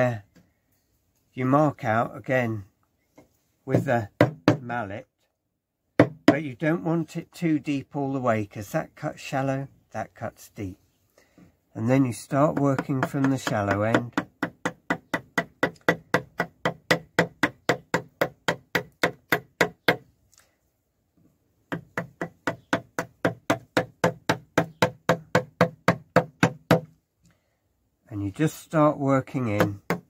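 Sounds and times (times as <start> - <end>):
wooden mallet striking chisel: 3.7 - 4.7, 6.0 - 6.4, 12.4 - 20.1, 21.7 - 27.0, 29.4 - 30.0.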